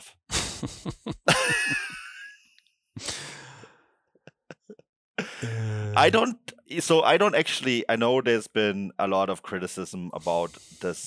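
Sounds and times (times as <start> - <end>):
person exhaling softly: 3.0 - 3.8, 5.2 - 6.0
person laughing sigh: 3.0 - 3.8, 5.2 - 6.1.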